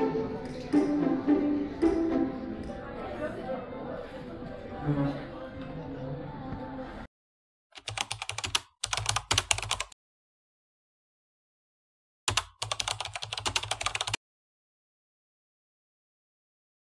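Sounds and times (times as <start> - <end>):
typing on computer keyboard: 7.8 - 10.0, 12.3 - 14.2.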